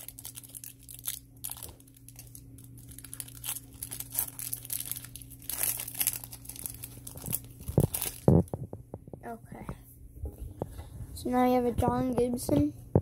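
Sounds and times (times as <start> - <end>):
card wrapper crinkling: 0.0 - 8.6.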